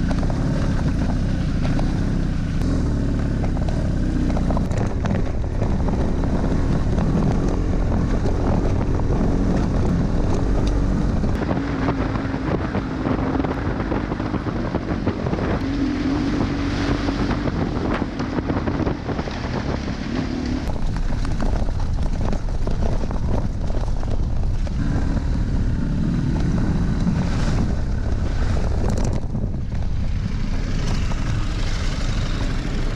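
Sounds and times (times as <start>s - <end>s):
motorcycle engine revving: 0.0s - 32.9s
wind buffeting microphone: 0.0s - 32.9s.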